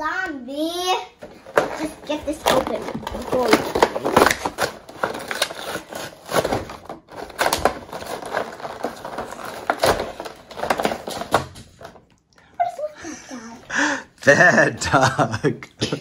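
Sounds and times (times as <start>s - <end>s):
packaging being torn and crinkled: 1.8s - 12.0s.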